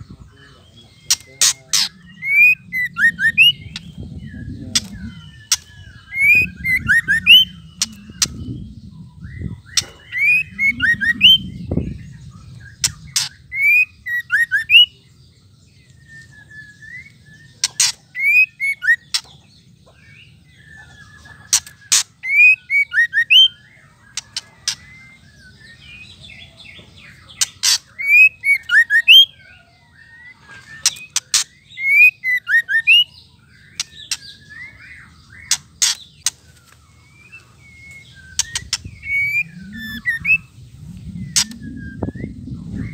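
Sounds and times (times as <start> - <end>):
bird clicking and whistling calls: 1.0 - 4.0, 4.7 - 8.6, 9.7 - 11.4, 12.8 - 14.9, 15.8 - 19.4, 20.8 - 25.4, 27.1 - 29.3, 30.4 - 42.9.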